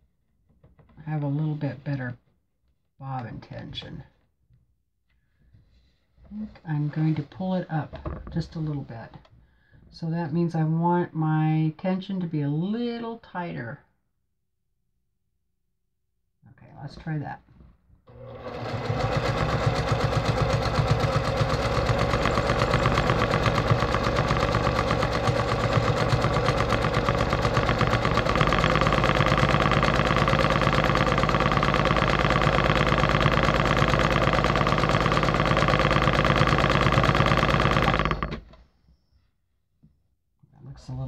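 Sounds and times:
sewing machine running: 0:18.1 - 0:38.5.

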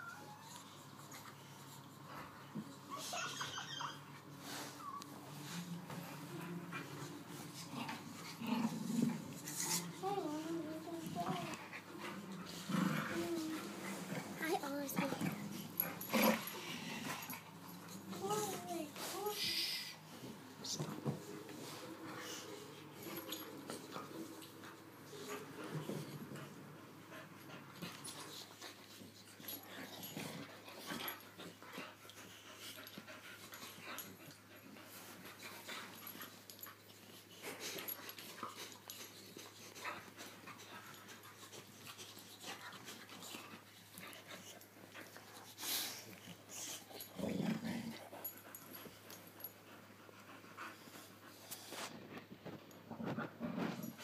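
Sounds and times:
dog growling: 0:07.6 - 0:14.4, 0:15.0 - 0:17.5, 0:46.9 - 0:48.1
dogs panting: 0:09.3 - 0:52.4.

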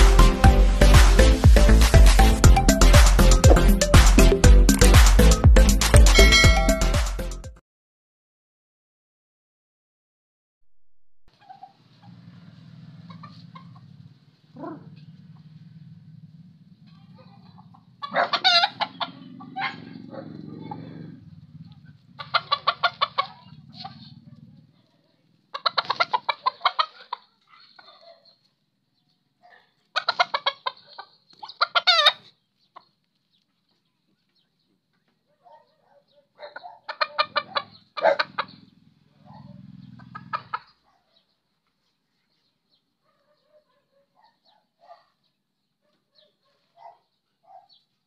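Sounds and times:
chicken clucking: 0:13.0 - 0:14.0, 0:17.0 - 0:20.0, 0:22.0 - 0:24.2, 0:25.5 - 0:28.0, 0:29.8 - 0:33.0, 0:36.4 - 0:40.8.

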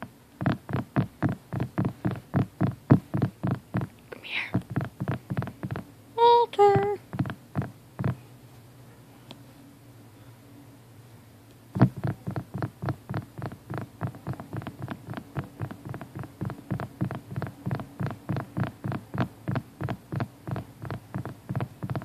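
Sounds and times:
fingers tapping on bedding: 0:00.0 - 0:05.9, 0:06.8 - 0:08.2, 0:11.8 - 0:22.0
faint low hum: 0:00.0 - 0:22.0.

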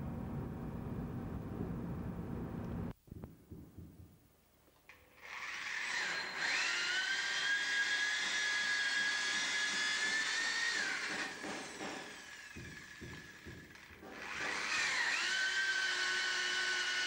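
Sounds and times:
drill with hole saw whining: 0:04.9 - 0:17.0.

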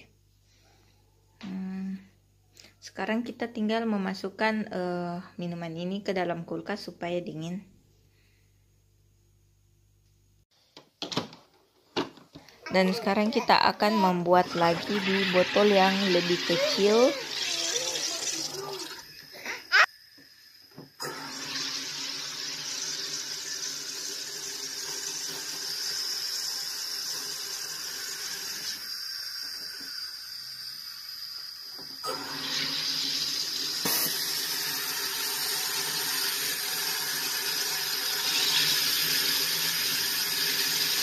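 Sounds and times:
carbonator hissing fizz: 0:14.4 - 0:41.0.

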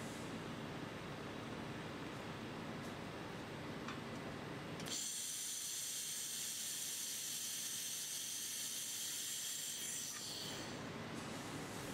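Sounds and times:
laser welding hiss: 0:04.9 - 0:10.8.

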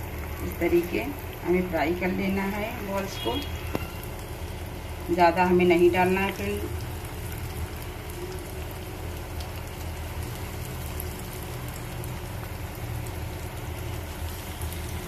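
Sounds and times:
hot oil sizzling and crackling: 0:00.0 - 0:15.0.

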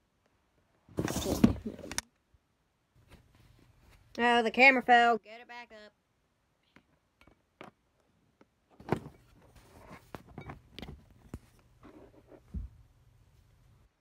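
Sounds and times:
rubbing and rustling: 0:00.9 - 0:02.0, 0:08.9 - 0:13.9.

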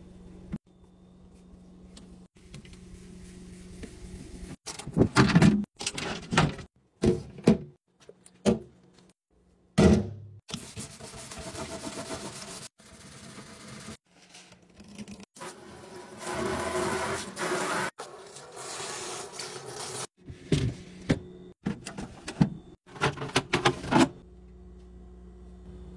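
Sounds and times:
sponge scrubbing plastic: 0:10.5 - 0:14.0.

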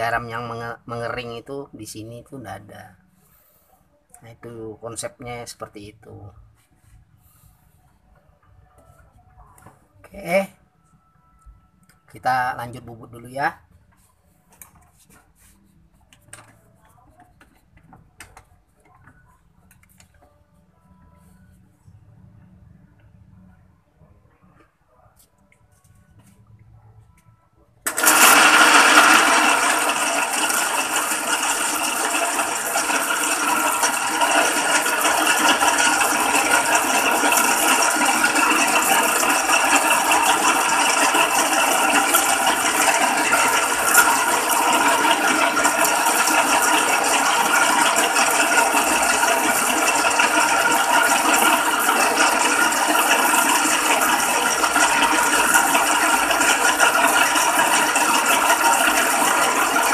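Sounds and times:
metal lathe gear whir: 0:27.9 - 0:59.9.

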